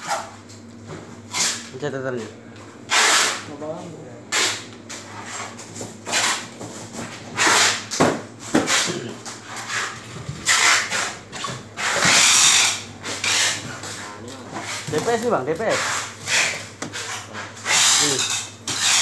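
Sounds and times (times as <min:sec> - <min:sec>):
styrofoam rubbing and scraping: 0:01.3 - 0:01.7, 0:02.9 - 0:03.5, 0:04.3 - 0:06.5, 0:07.3 - 0:07.9, 0:08.6 - 0:19.0.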